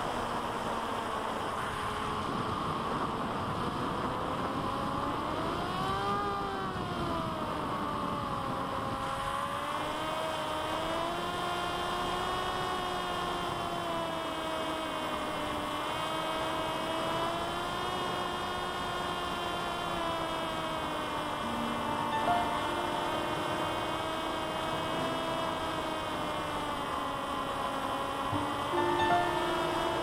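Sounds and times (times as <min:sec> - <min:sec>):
electric motor and propeller whine: 0:00.0 - 0:30.0
rush of noise: 0:21.4 - 0:30.0.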